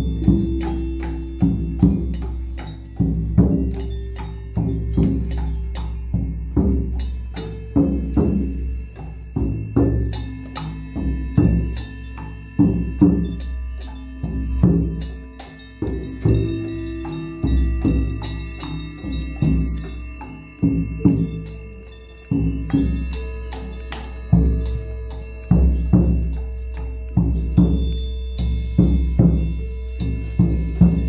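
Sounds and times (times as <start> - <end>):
held ringing tones: 0.0 - 31.0
frame drum struck with beater: 27.2 - 31.0.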